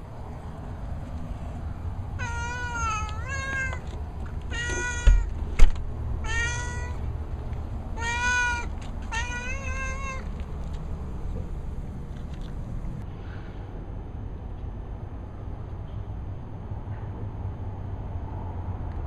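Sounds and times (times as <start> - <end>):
cat meowing: 2.2 - 3.9, 4.5 - 5.3, 6.2 - 7.1, 8.0 - 10.4.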